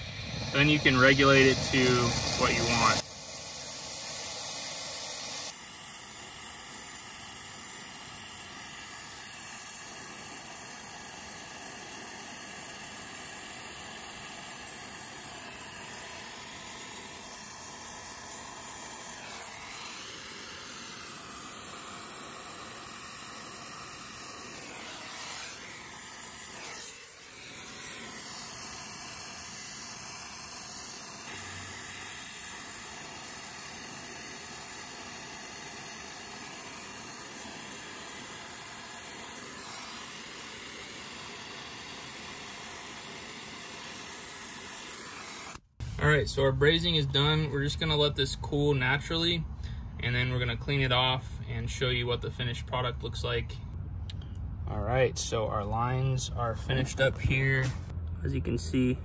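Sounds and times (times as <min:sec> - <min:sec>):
torch flame hissing: 0:00.0 - 0:47.0.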